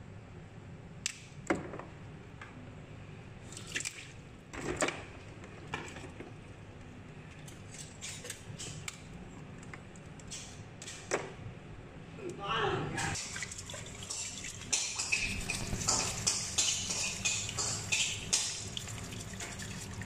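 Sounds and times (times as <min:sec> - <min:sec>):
water splashing and dripping: 0:13.2 - 0:20.0.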